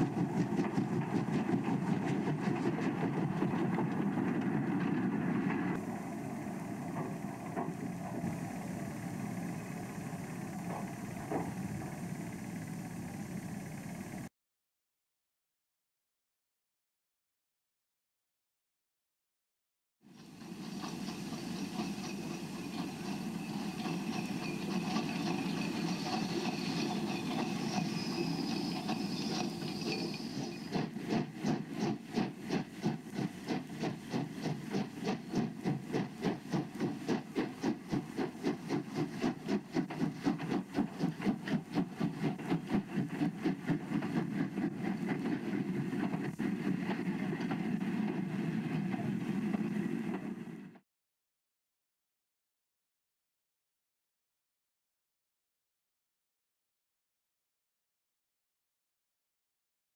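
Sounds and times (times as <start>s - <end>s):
steam locomotive chuffing beat: 0.0s - 14.3s, 20.0s - 50.8s
steam train rumble and hiss: 0.0s - 14.3s, 20.1s - 50.8s.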